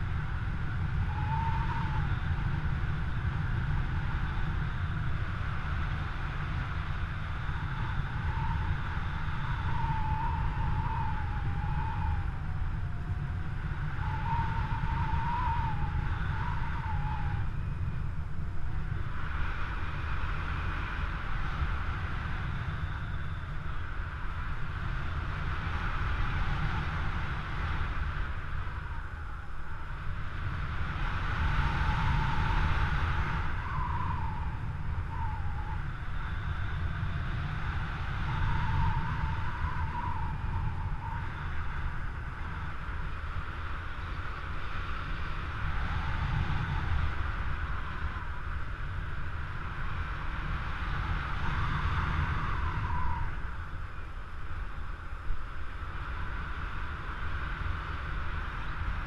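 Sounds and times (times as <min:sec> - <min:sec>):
wind rushing over microphone: 0:00.0 - 0:59.0
faint wavering whistle: 0:00.5 - 0:05.1, 0:07.2 - 0:20.2, 0:22.1 - 0:27.1, 0:31.3 - 0:43.2, 0:44.9 - 0:50.3, 0:50.9 - 0:54.2.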